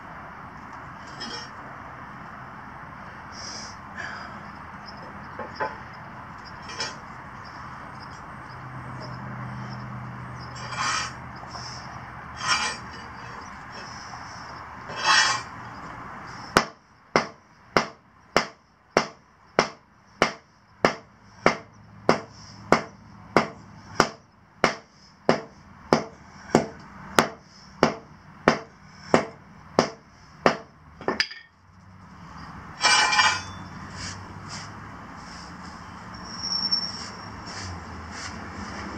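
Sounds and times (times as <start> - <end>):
scraping on asphalt: 0.6 - 1.7, 4.9 - 8.3, 8.9 - 16.6, 31.0 - 38.9
sledgehammer pounding asphalt: 16.5 - 31.2.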